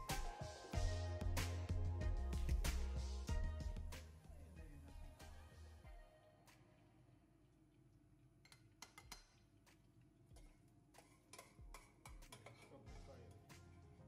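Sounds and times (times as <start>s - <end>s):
spoon tapping a pot: 8.4s - 9.4s, 10.4s - 12.7s
pot knocking on burner grate: 10.4s - 12.7s.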